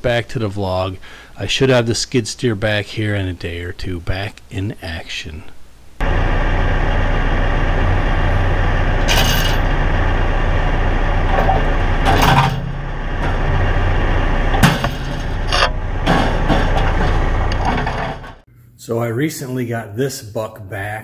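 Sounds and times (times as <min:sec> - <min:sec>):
excavator diesel engine running: 0:06.0 - 0:18.4
metal creaking and cracking: 0:14.4 - 0:18.4.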